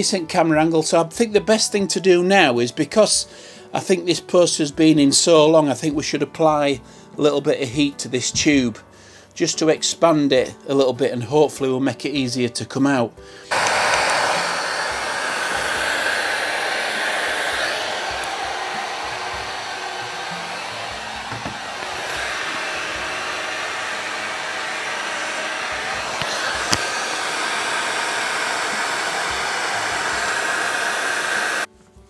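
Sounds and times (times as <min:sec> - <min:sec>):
heat gun fan whirring: 0:13.5 - 0:31.7.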